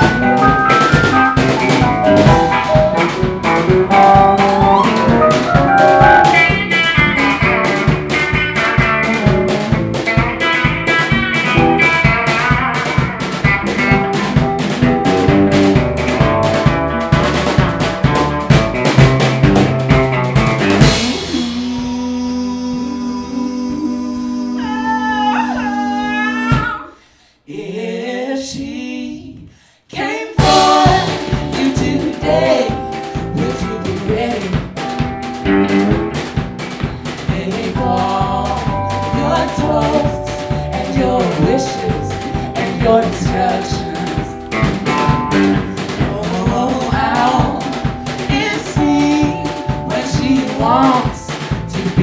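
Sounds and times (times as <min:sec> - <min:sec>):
live band playing: 0:00.0 - 0:26.7, 0:30.4 - 0:52.0
electric guitar: 0:00.0 - 0:26.8, 0:30.4 - 0:52.0
piano: 0:00.0 - 0:26.8, 0:30.0 - 0:52.0
drum kit: 0:00.0 - 0:26.9, 0:30.3 - 0:52.0
person singing: 0:03.8 - 0:07.8, 0:20.8 - 0:35.0, 0:37.0 - 0:52.0.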